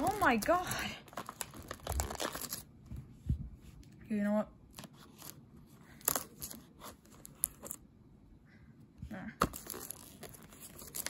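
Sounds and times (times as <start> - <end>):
plastic crinkling: 0.0 - 2.7, 9.4 - 11.0.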